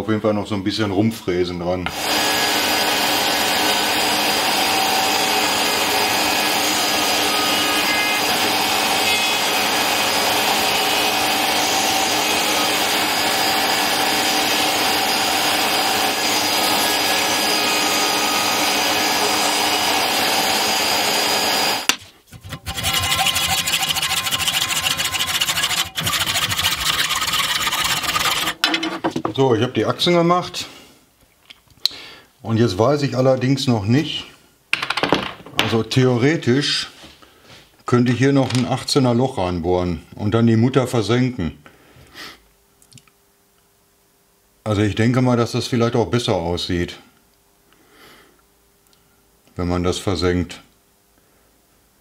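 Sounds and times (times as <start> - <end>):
router whining: 1.9 - 28.6
hacksaw cutting steel rod: 6.4 - 28.8.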